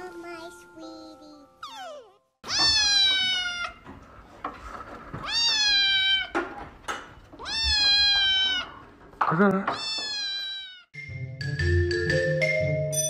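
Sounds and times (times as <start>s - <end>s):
kitten meowing: 1.6s - 3.8s, 5.2s - 6.4s, 7.4s - 8.8s, 9.8s - 10.9s.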